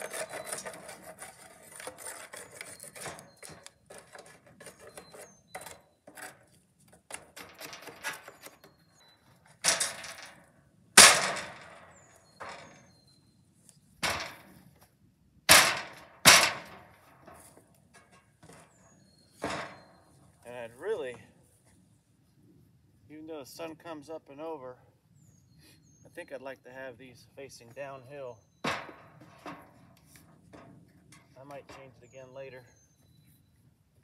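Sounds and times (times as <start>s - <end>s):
wood scraping on wood: 0.0s - 10.2s.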